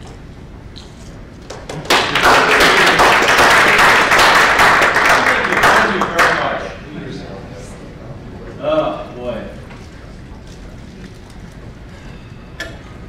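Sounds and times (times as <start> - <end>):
audience applause: 1.5 - 6.8.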